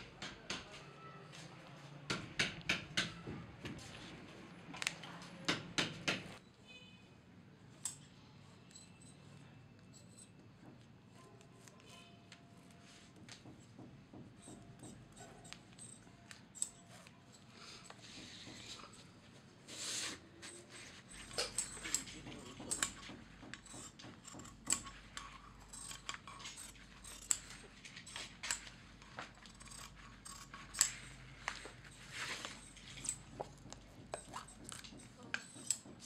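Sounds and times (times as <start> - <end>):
scissors snipping: 23.6 - 31.7.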